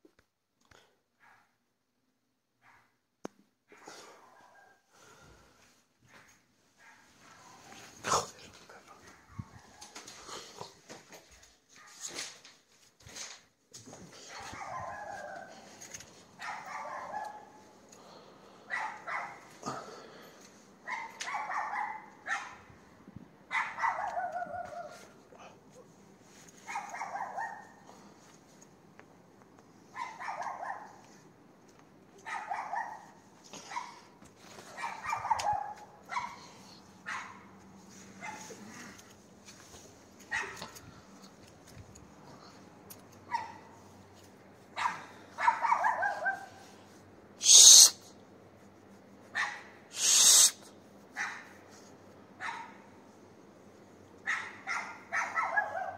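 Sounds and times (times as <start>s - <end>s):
dog barking: 1.2s - 1.6s, 2.6s - 3.0s, 3.7s - 4.8s, 6.1s - 8.4s, 9.0s - 10.2s, 14.2s - 15.7s, 16.4s - 17.7s, 18.7s - 19.6s, 20.8s - 22.7s, 23.5s - 25.2s, 26.6s - 27.9s, 29.9s - 31.1s, 32.2s - 37.5s, 38.2s - 39.0s, 40.3s - 40.8s, 43.3s - 43.8s, 44.8s - 46.6s, 49.4s - 50.5s, 52.4s - 52.9s, 54.2s - 55.9s
short hissing burst: 47.4s - 48.0s, 49.9s - 50.6s.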